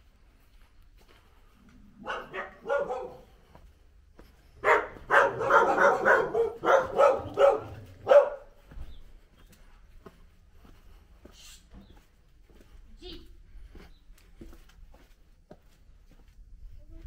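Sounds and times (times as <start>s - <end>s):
dog barking: 2.0s - 3.4s, 4.6s - 8.6s.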